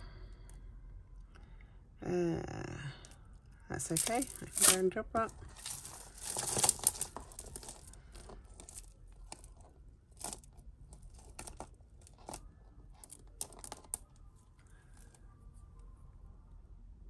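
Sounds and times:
chain and beads rattling: 3.8 - 14.2.

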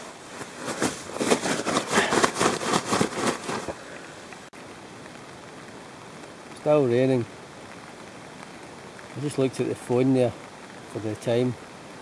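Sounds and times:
nylon fabric rustling: 0.0 - 4.0.

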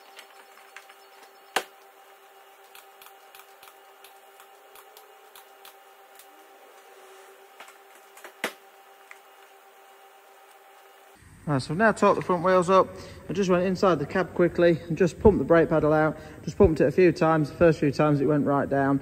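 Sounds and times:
workshop hum: 0.0 - 19.0
small clicks: 2.6 - 6.3.

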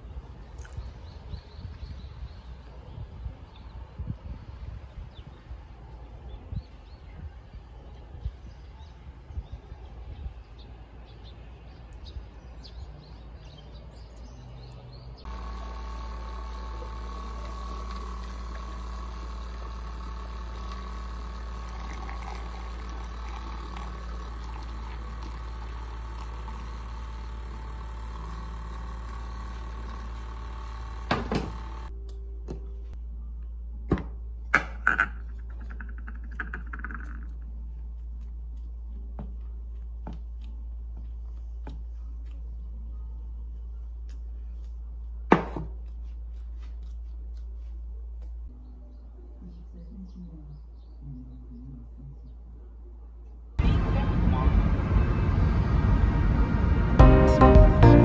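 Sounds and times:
milk frother humming: 15.3 - 31.9.

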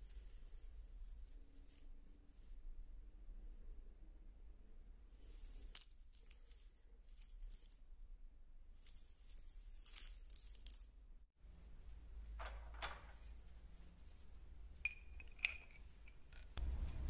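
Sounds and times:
ball bearings rustling in hand: 5.2 - 8.0, 8.7 - 11.1, 11.8 - 17.0
steel parts clinking: 8.8 - 10.9, 14.8 - 17.0.

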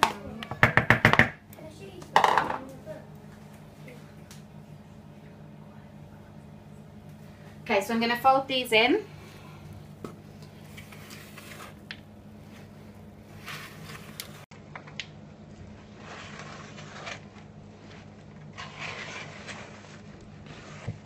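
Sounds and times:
spoon scraping batter in bowl: 10.6 - 11.9, 15.8 - 21.0.

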